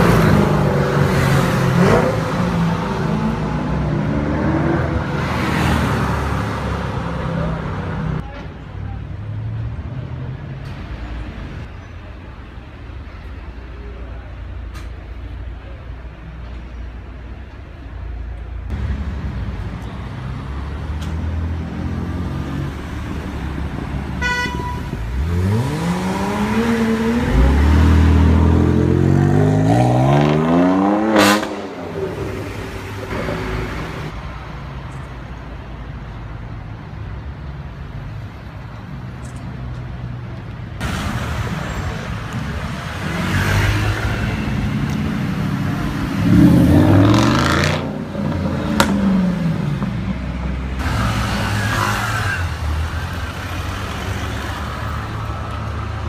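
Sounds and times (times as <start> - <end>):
sports car engines accelerating: 0.0 - 8.2, 25.1 - 34.1, 42.8 - 55.9
street noise: 0.0 - 56.0
car horn toot: 24.2 - 25.0.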